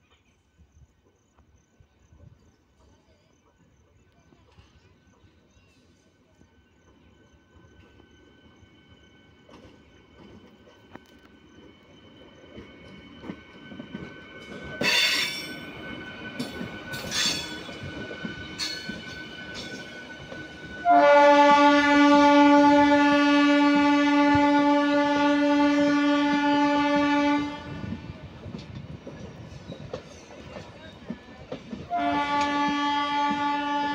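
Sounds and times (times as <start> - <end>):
train rumble: 0.1 - 33.9
locomotive horn blast: 20.8 - 28.0, 31.9 - 33.9.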